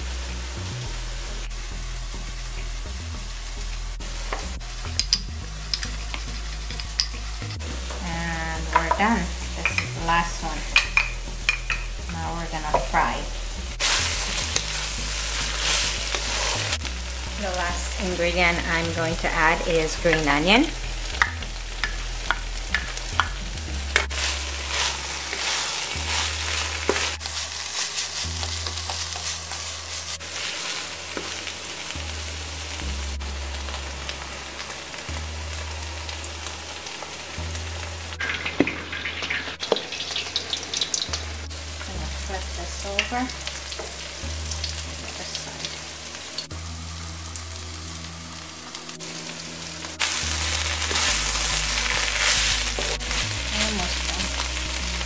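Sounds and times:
low hum: 0.0s - 27.6s
dough sizzling in hot oil: 0.0s - 55.0s.

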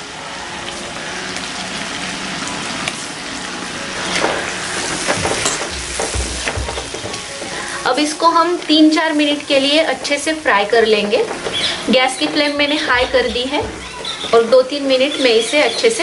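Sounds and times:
paste sizzling in hot oil: 0.0s - 16.0s
spatula scraping pan: 4.2s - 7.9s, 9.4s - 16.0s
dull knocks: 5.1s - 7.6s, 11.2s - 14.6s.

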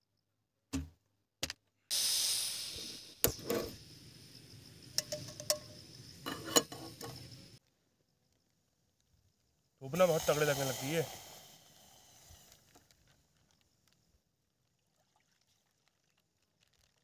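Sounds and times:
gas stove hissing: 1.9s - 7.6s, 9.9s - 12.7s
metal pot clinking: 5.0s - 7.3s.

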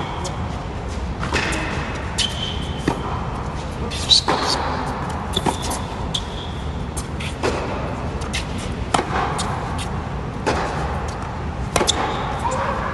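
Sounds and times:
steady low hum: 0.0s - 12.9s
ball bouncing on hard court: 1.2s - 3.2s, 4.1s - 6.4s, 7.0s - 12.7s.

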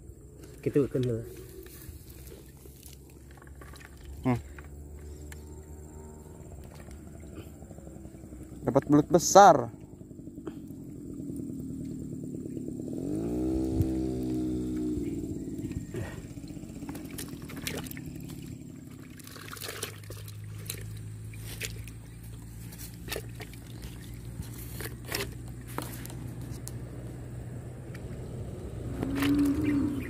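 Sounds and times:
steady low hum: 0.0s - 30.0s
water trickling: 13.5s - 25.8s.

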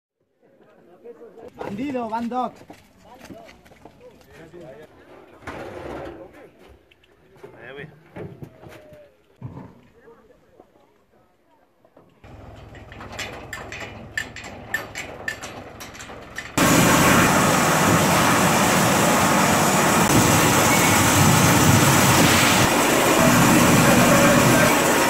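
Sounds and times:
grape sorting machine running: 12.3s - 25.0s
tractor engine running: 12.3s - 25.0s.

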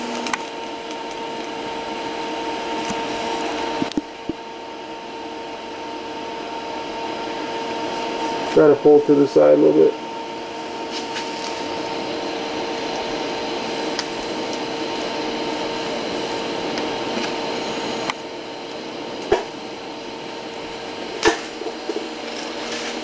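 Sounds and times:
welding arc hissing: 10.6s - 23.0s.

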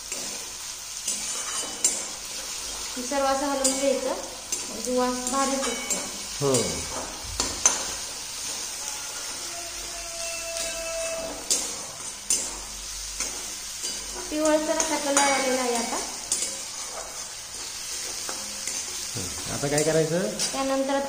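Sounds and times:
spatula scraping a pan: 0.0s - 20.6s
food sizzling in oil: 0.0s - 21.0s
spatula clinking against pan: 1.0s - 2.2s, 3.5s - 6.3s, 10.0s - 12.6s, 13.2s - 17.1s.

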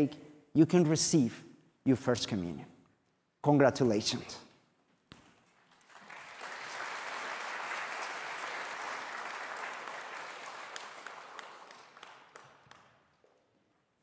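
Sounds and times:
congregation applauding: 5.6s - 13.2s.

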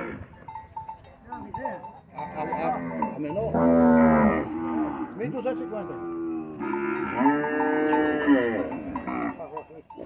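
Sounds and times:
cattle mooing: 0.0s - 0.3s, 2.2s - 9.5s.

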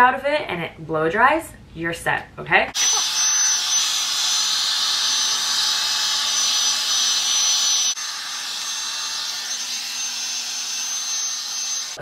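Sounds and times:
hair dryer blowing: 2.8s - 12.0s.

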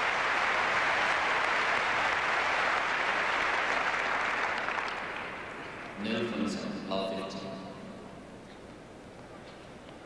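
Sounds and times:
crowd applauding: 0.0s - 5.9s.

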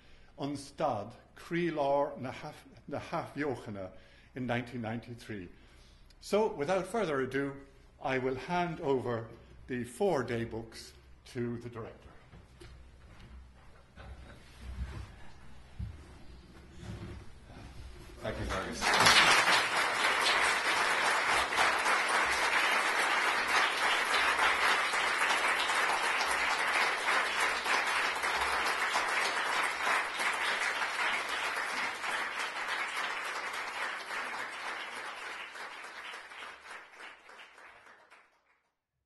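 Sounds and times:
audience applauding: 18.5s - 38.6s.

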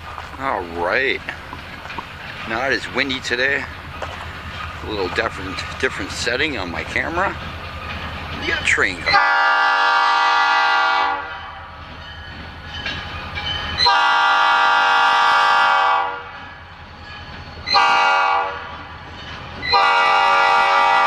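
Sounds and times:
locomotive air horn blasts: 9.1s - 11.3s, 13.8s - 16.3s, 17.7s - 18.7s, 19.7s - 21.0s.

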